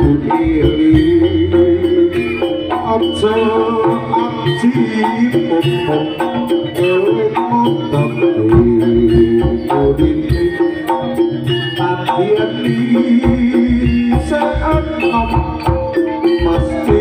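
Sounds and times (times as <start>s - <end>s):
drums and percussion ensemble: 0.0s - 17.0s
held melody tones: 0.0s - 17.0s.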